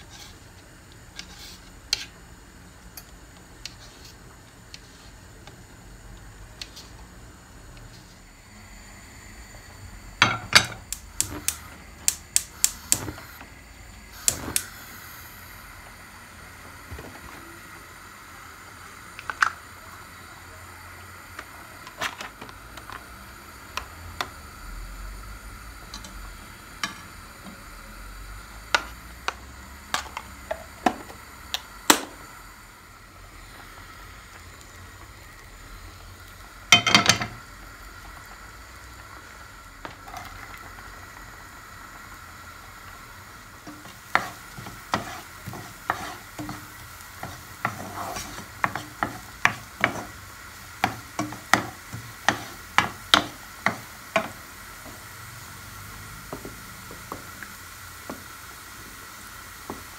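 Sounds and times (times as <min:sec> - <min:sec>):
butter sizzling in a pan: 0:00.0 - 0:59.9
onion crackling in a pan: 0:00.0 - 0:59.9
knife tapping a pan: 0:36.7 - 0:37.4, 0:43.7 - 0:50.1, 0:50.8 - 0:54.4
wooden spoon knocking a pan: 0:36.7 - 0:37.4, 0:43.7 - 0:50.2, 0:50.8 - 0:54.4.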